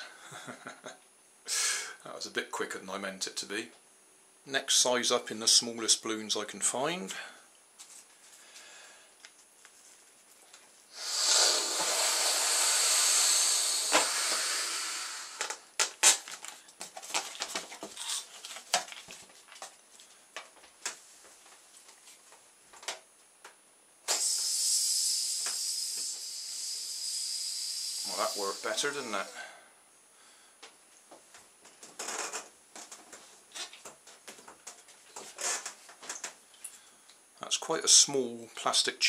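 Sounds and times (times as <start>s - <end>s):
rush of air: 10.9s - 15.6s, 24.1s - 29.6s
hiss of escaping air: 10.9s - 15.8s, 24.0s - 29.7s.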